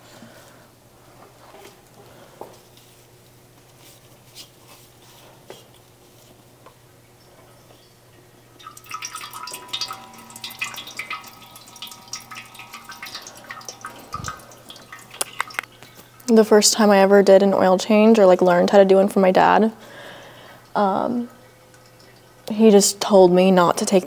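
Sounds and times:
oil dripping into a metal pan: 0:08.6 - 0:16.3, 0:20.5 - 0:22.6.

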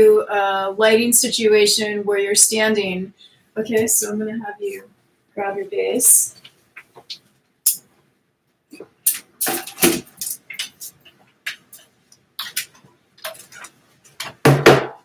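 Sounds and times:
objects being handled: 0:08.7 - 0:14.5.

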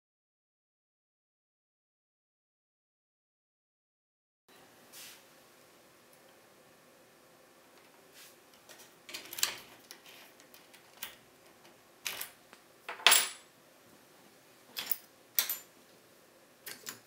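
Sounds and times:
metallic clinks of keys and tools: 0:14.8 - 0:15.7.

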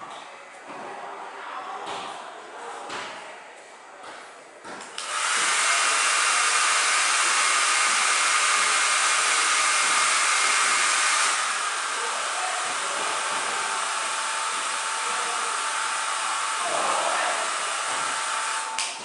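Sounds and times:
hair dryer blowing: 0:05.0 - 0:19.0.

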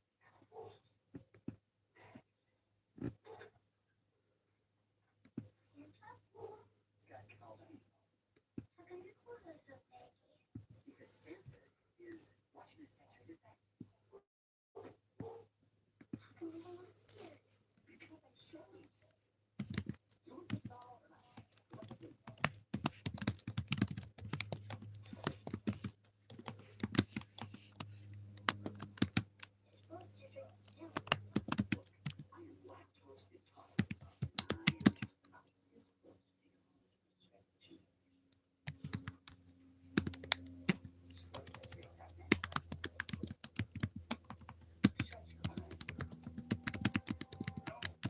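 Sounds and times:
keyboard typing clicks: 0:19.6 - 0:29.9, 0:30.6 - 0:32.2, 0:33.8 - 0:35.2, 0:38.7 - 0:48.0.

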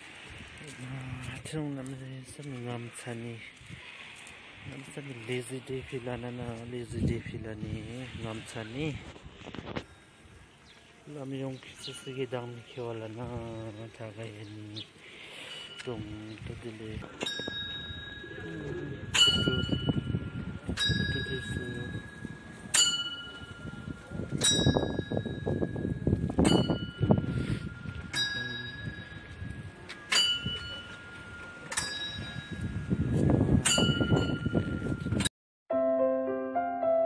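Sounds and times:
prayer wheel bells dinging: 0:11.1 - 0:35.3.

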